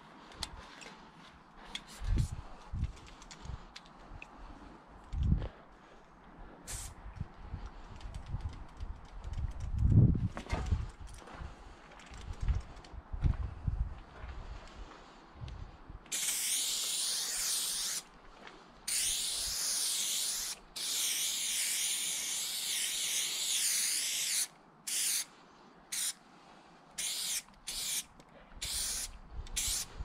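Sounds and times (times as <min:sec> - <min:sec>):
spray paint can hissing: 0:06.7 - 0:07.0, 0:16.1 - 0:18.0, 0:18.9 - 0:25.3, 0:25.9 - 0:26.2, 0:27.0 - 0:29.9.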